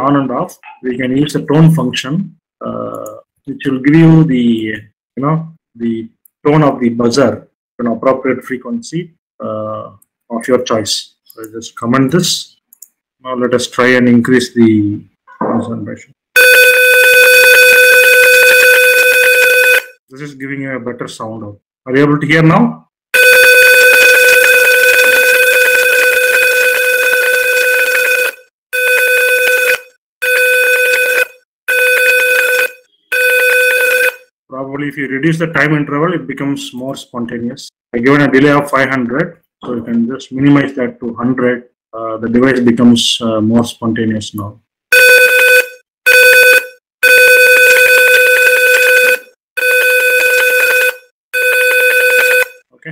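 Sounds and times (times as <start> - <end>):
piezo buzzer beeping: 23.2 - 34.3, 45.0 - 52.6.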